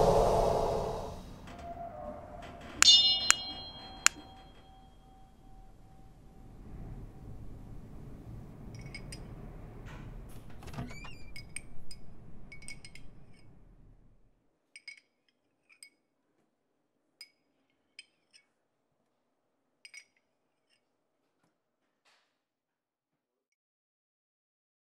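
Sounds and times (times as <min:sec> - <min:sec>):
low rumbling hum: 0:00.0 - 0:02.0
high tinkling chime strikes: 0:02.8 - 0:05.3.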